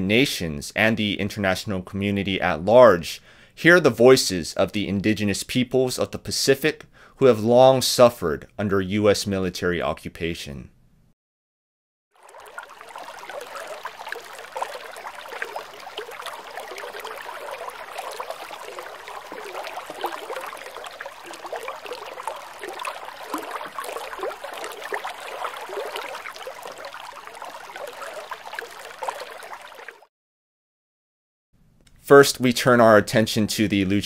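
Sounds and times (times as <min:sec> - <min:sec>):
water trickling and lapping: 0:12.2 - 0:30.1.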